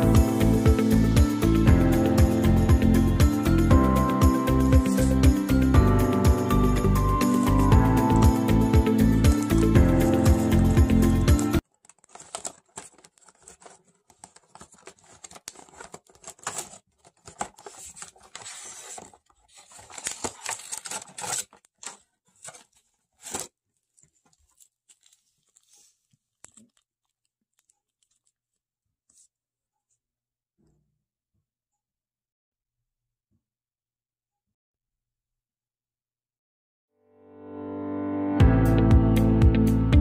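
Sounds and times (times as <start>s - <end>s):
cardboard box tearing: 11.8s - 23.6s.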